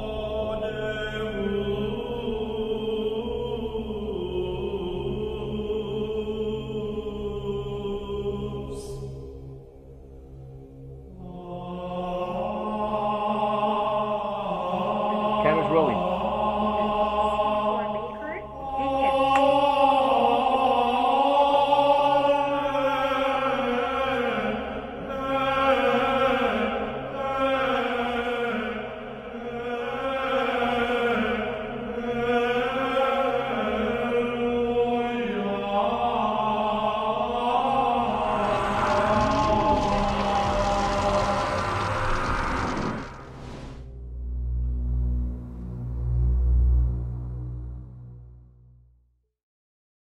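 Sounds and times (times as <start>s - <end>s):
slow choral chant: 0.0s - 43.8s
steady low drone: 0.0s - 49.1s
rushing noise: 37.3s - 47.9s.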